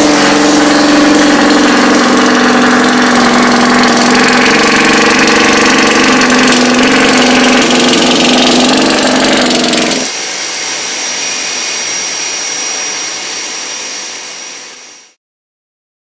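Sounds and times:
motorcycle engine running: 0:00.0 - 0:10.2
steady hiss with high whine: 0:10.1 - 0:15.2.

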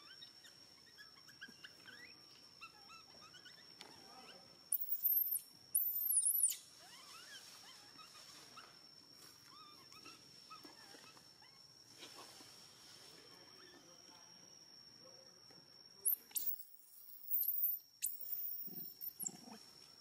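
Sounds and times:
quick chirping calls: 0:04.7 - 0:06.7, 0:16.0 - 0:19.4.

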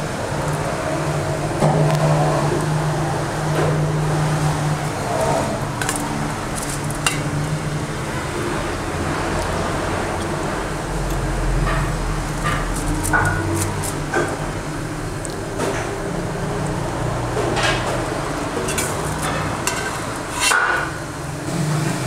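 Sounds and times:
steady mechanical hum: 0:00.0 - 0:22.0
ladle clinking against metal pot: 0:06.6 - 0:07.4, 0:18.6 - 0:21.0.

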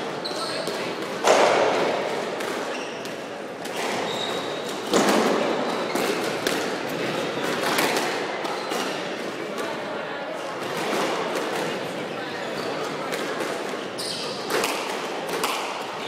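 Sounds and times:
squash balls thudding: 0:04.8 - 0:08.5.

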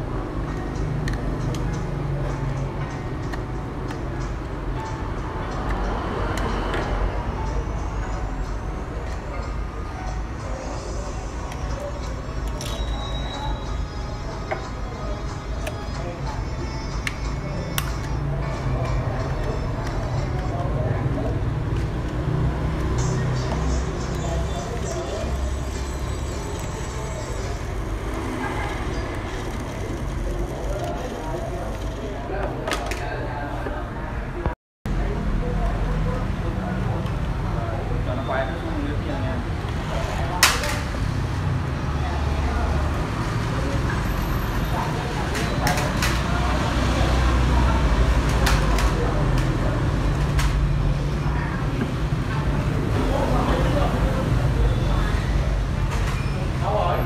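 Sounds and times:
indistinct background voices: 0:00.0 - 0:57.0.

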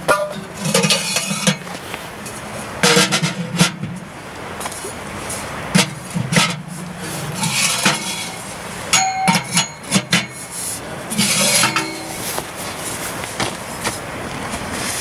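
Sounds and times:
steel pipes clanking: 0:00.0 - 0:13.5
rustling: 0:06.4 - 0:14.0.

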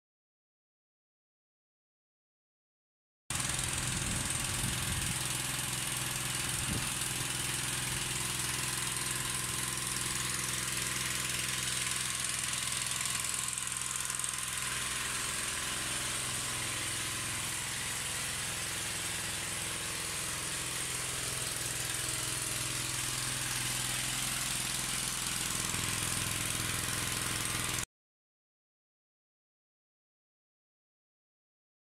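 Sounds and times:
vacuum pump running: 0:03.3 - 0:27.8.

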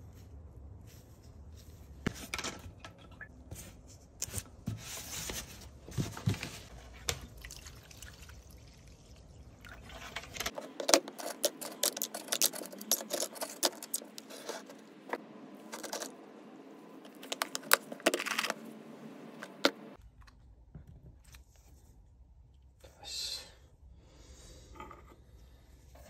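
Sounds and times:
liquid trickling and splashing: 0:07.1 - 0:10.5
small metal parts rattling: 0:10.1 - 0:14.6.

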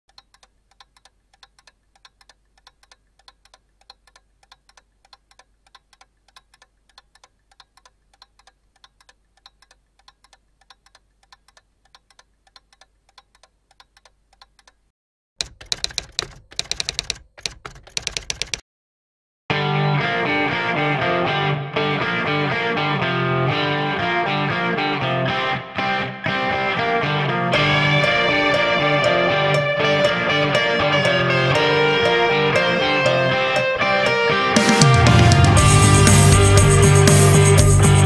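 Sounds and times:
typewriter key clicks: 0:15.4 - 0:18.6.

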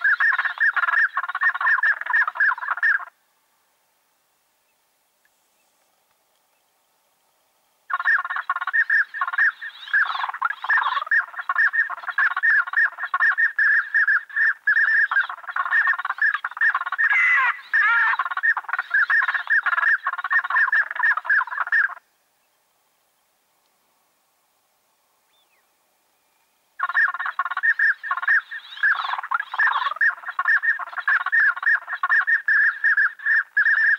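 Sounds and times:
duck quacks: 0:14.1 - 0:22.0.

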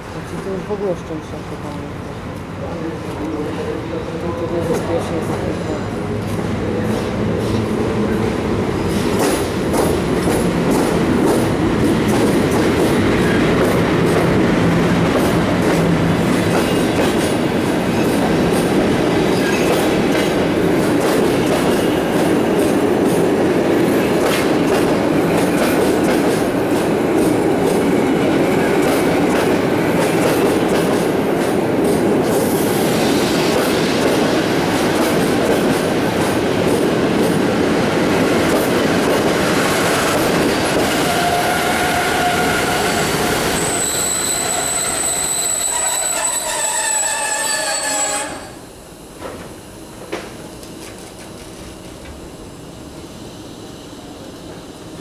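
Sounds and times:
train wheels clicking over rail joints: 0:08.8 - 0:32.6.

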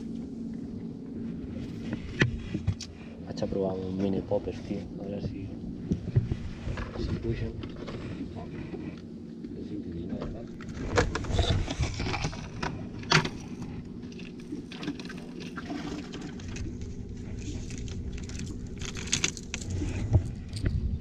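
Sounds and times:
boat engine running: 0:00.0 - 0:21.0
fishing tackle clicking and rattling: 0:17.6 - 0:19.8.

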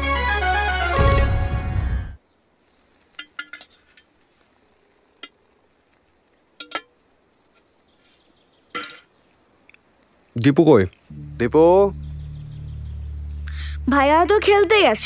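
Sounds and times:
music sting: 0:11.1 - 0:15.0.

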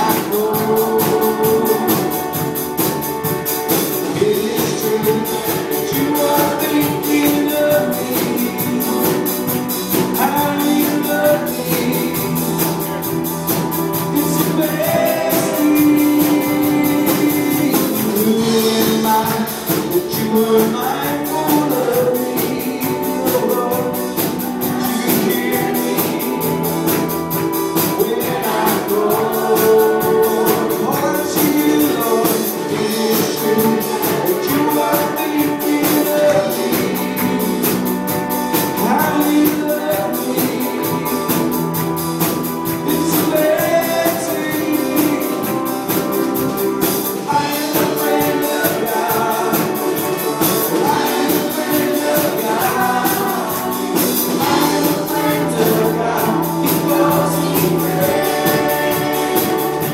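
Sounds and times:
fast ticking beat: 0:00.0 - 0:59.9
voices singing: 0:00.0 - 0:59.9
worship band playing: 0:00.0 - 0:59.9.

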